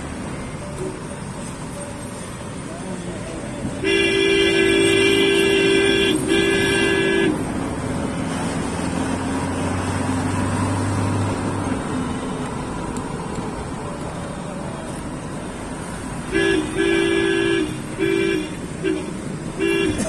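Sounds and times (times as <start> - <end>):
car engine and road noise: 0.0 - 20.0
car horn blasts: 3.8 - 7.5, 16.2 - 20.0.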